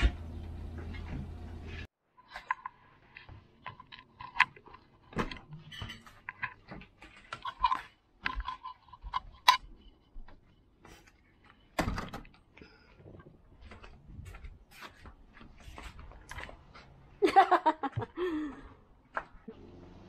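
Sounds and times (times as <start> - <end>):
cutlery and crockery clinking: 5.6 - 6.5.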